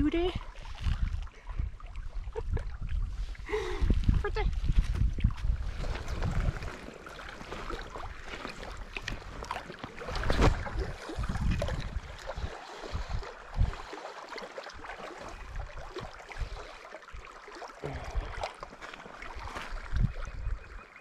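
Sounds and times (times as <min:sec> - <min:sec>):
wind gusting on microphone: 0:00.0 - 0:13.9, 0:19.7 - 0:20.8.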